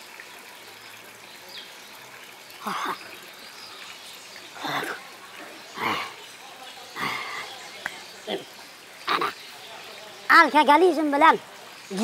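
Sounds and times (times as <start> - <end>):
faint outdoor background: 0.0 - 12.0.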